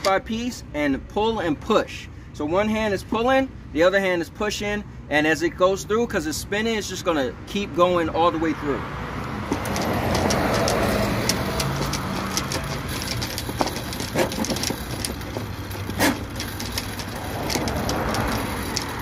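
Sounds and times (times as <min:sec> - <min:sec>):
cable clicks: 0:09.2 - 0:19.0
drain snake motor hum: 0:09.3 - 0:19.0.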